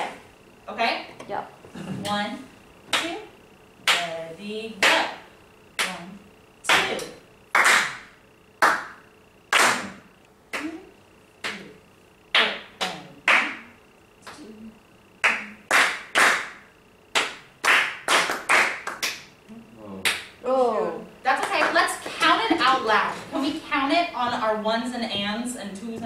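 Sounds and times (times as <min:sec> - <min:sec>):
hand claps: 0:03.8 - 0:04.1, 0:06.7 - 0:10.7, 0:12.3 - 0:13.6, 0:15.2 - 0:19.4, 0:20.0 - 0:20.4.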